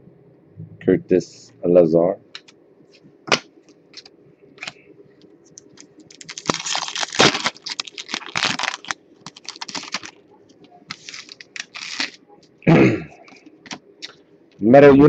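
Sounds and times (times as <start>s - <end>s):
foil pack crinkling: 5.6s - 10.2s, 10.8s - 12.2s.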